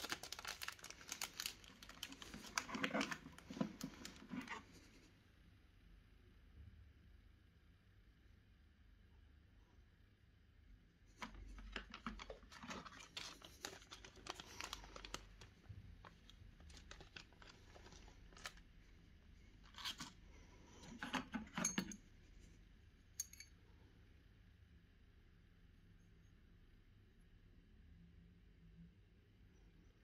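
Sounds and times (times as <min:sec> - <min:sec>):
plastic bags crinkling: 0:00.0 - 0:04.6, 0:11.5 - 0:18.6.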